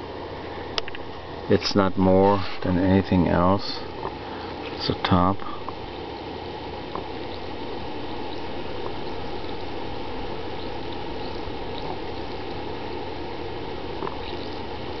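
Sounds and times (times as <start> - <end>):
electrolysis cell fizzing: 3.8 - 15.0.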